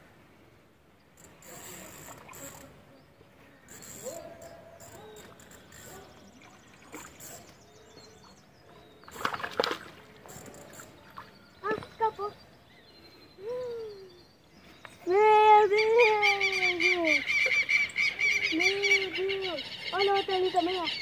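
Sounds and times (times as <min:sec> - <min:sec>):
fish splashing in water: 0:09.1 - 0:11.4.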